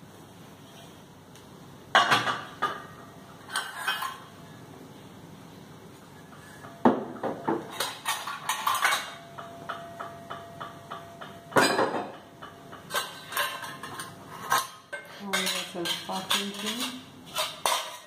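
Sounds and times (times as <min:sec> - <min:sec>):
metal tumblers clinking in dishwasher rack: 0:02.0 - 0:04.3, 0:06.4 - 0:18.0.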